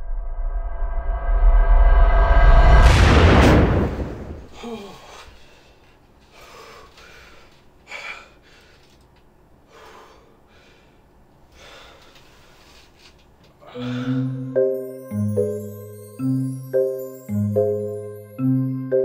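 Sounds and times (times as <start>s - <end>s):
man panting shakily: 13.6s - 14.4s.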